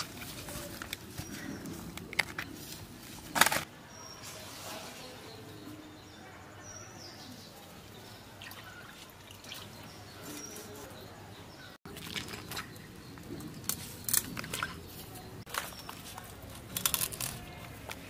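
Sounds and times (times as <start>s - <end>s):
birds chirping: 0.0s - 18.0s
fish clicking and splashing in pot: 11.9s - 17.9s.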